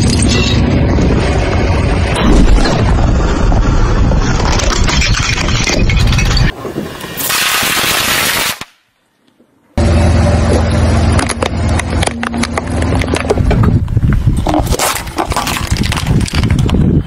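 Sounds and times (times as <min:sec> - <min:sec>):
plastic cube cracking and crunching: 0:14.4 - 0:17.0.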